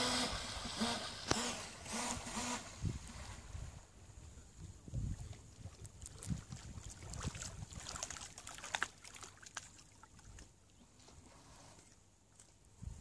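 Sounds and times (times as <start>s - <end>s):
waves lapping on stony shore: 0.0s - 3.8s, 5.4s - 10.6s
wind rumbling on microphone: 1.9s - 8.3s, 12.7s - 13.0s.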